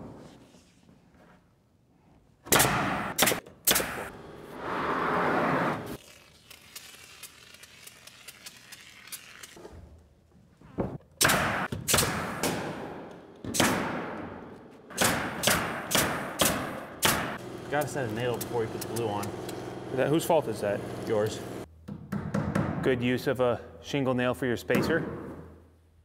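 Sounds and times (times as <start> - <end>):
nail gun firing: 2.5 - 4.1, 11.2 - 19.6.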